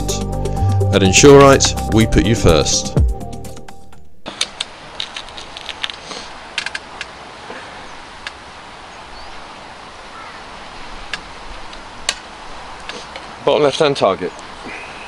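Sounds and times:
steady background hiss: 4.1 - 15.0
air rifle action clicking: 4.3 - 7.1.

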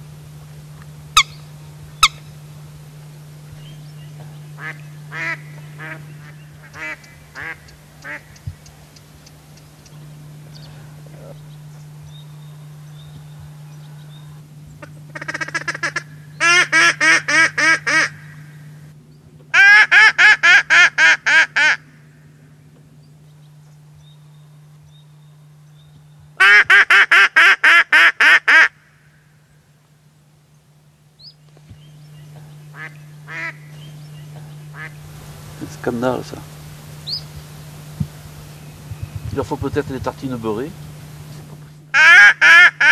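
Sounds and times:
duck call quacking: 4.6 - 8.4, 15.1 - 18.2, 19.6 - 21.8, 26.4 - 28.8, 32.7 - 33.7, 34.7 - 35.0, 41.9 - 42.9.

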